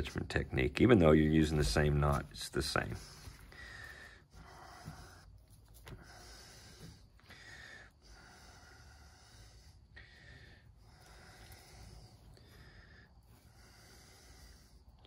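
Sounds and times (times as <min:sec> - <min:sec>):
person breathing slowly: 0:02.6 - 0:15.0.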